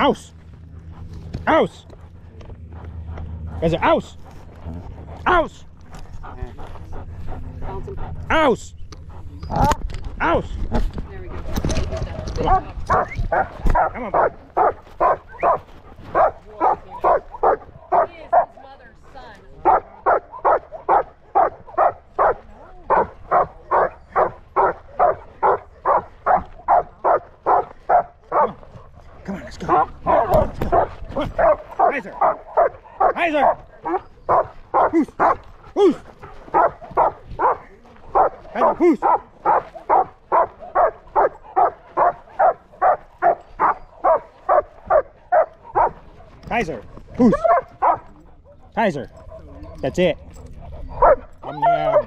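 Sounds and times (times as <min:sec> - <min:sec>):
dog barking: 0:12.4 - 0:18.6, 0:19.6 - 0:28.6, 0:29.6 - 0:35.5, 0:36.2 - 0:46.2, 0:47.2 - 0:49.7, 0:50.7 - 0:52.0.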